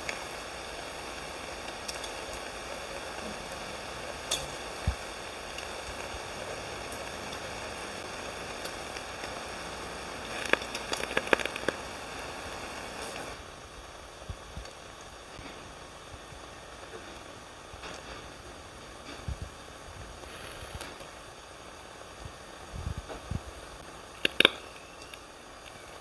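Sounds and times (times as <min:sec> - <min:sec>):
meat sizzling in a waffle maker: 0:00.0 - 0:26.0
sharp pops and clicks: 0:06.8 - 0:13.4, 0:23.1 - 0:25.8.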